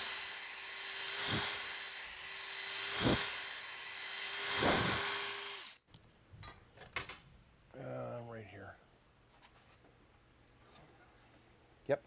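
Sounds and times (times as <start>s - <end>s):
electric drill whining: 0.0s - 5.8s.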